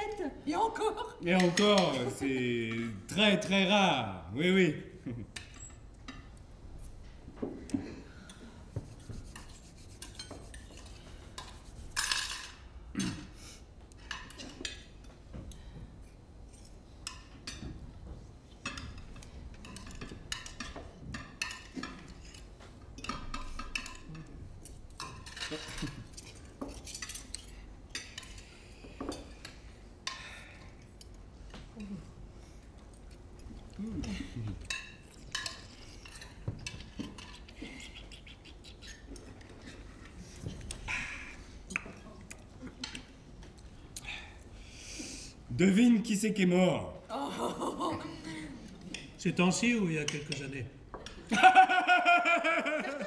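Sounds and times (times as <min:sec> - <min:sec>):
cutlery clinking on plates: 0:09.4 - 0:13.4, 0:18.6 - 0:30.4, 0:34.5 - 0:37.6.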